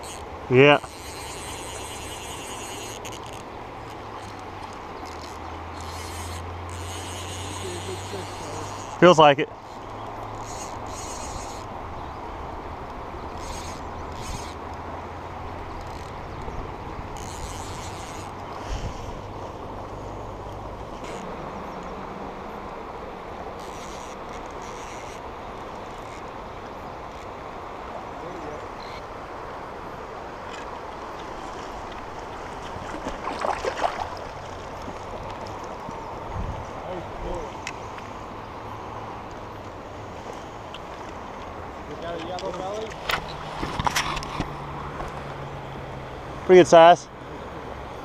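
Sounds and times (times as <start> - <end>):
river rushing: 0.0 - 48.0
river rushing over rocks: 25.3 - 37.2.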